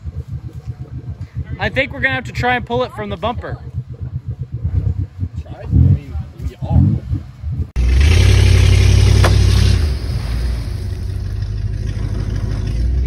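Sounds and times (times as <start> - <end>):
water rushing: 0.0 - 12.1
truck engine revving hard: 5.6 - 13.0.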